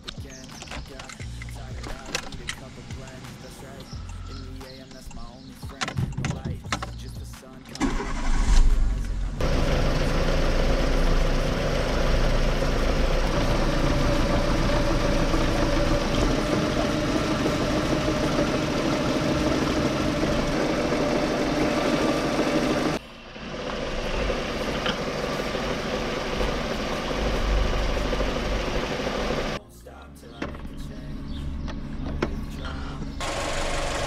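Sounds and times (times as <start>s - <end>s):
car engine idling: 6.7s - 29.6s, 30.3s - 34.0s.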